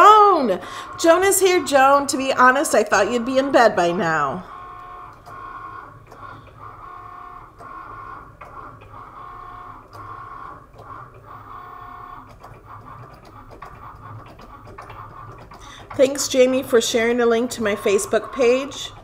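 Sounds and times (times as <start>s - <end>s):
cutting machine motors whining: 0.0s - 19.0s.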